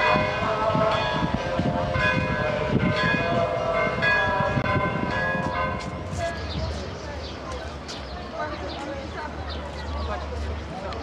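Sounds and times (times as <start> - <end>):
bells ringing: 0.0 - 6.6.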